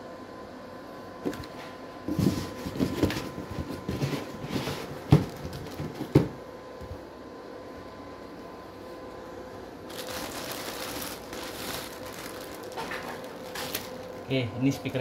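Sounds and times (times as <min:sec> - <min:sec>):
faint steady hum: 0:00.0 - 0:15.0
plastic rustling and knocking: 0:02.1 - 0:06.4, 0:09.9 - 0:14.2.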